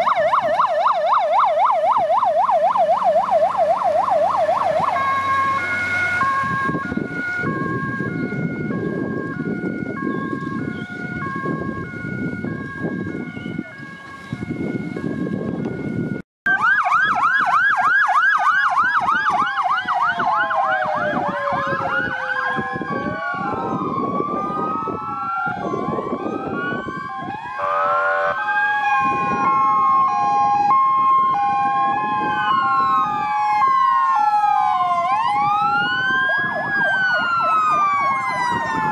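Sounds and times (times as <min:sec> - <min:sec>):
two-tone siren: 0:00.0 - 0:38.9
wailing sirens: 0:00.0 - 0:38.9
engine noise: 0:02.8 - 0:15.8.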